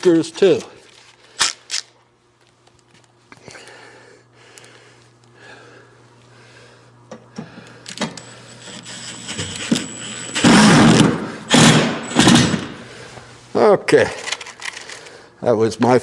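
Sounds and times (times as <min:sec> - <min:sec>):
screw gun motor driving screw: 0:08.6 - 0:10.4.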